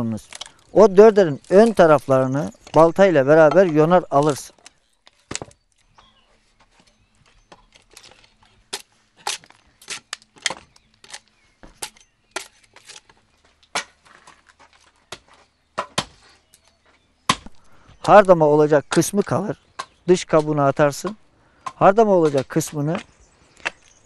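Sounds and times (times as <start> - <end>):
axe chopping wood: 5.2 - 5.6, 7.6 - 16.2, 17.3 - 18.2, 19.8 - 24.0.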